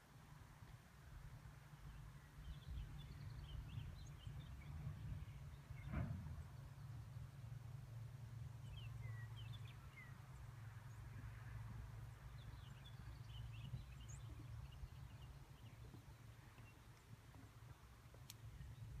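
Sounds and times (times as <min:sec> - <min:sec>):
small birds chirping: 0:08.6 - 0:11.0, 0:12.1 - 0:19.0.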